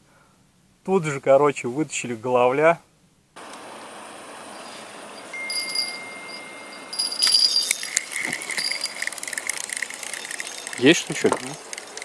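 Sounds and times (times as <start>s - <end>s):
fishing rod bell jingling: 4.6s - 12.0s.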